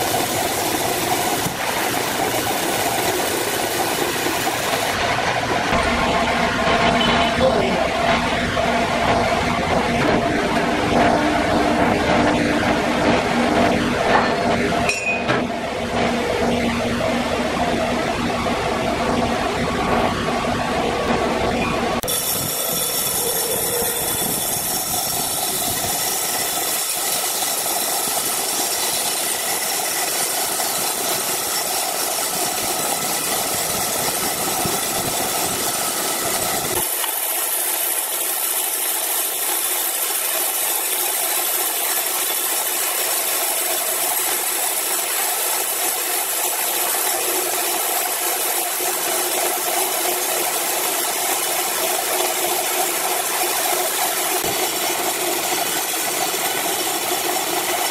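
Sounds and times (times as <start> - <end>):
band saw blade sawing timber: 22.0 - 57.9.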